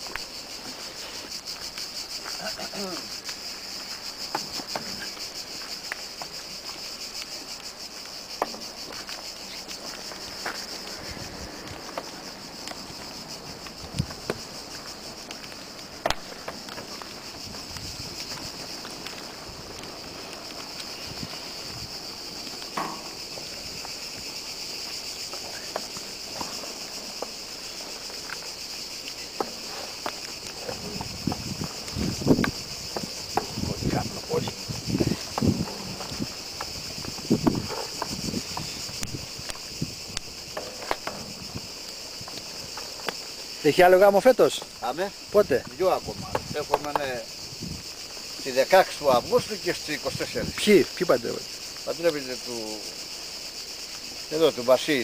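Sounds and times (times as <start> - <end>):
cicadas buzzing: 0.0 - 55.0
short sharp pops: 16.0 - 16.3.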